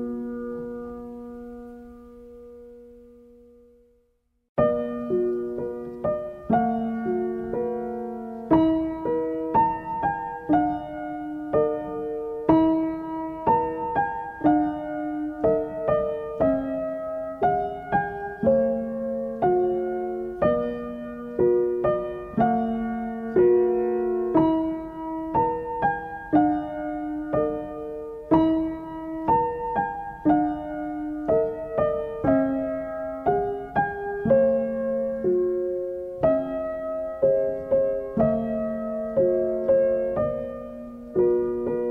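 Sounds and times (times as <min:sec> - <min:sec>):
gentle piano melody: 0:00.0 - 0:41.9.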